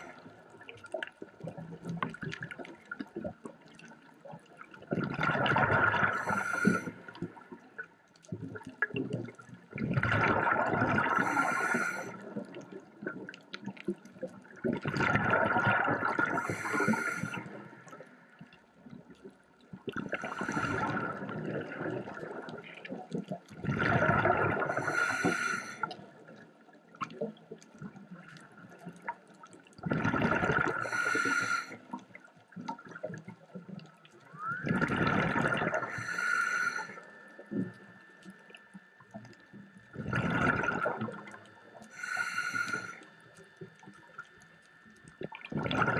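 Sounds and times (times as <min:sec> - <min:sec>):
exhaled bubbles: 0:04.7 - 0:07.6, 0:08.2 - 0:18.1, 0:19.8 - 0:26.4, 0:28.8 - 0:38.2, 0:39.0 - 0:43.0, 0:45.2 - 0:45.9
diver breathing through regulator: 0:06.0 - 0:07.2, 0:11.0 - 0:12.3, 0:16.1 - 0:18.0, 0:20.1 - 0:21.6, 0:24.6 - 0:26.0, 0:30.6 - 0:31.9, 0:34.4 - 0:37.6, 0:41.8 - 0:43.2.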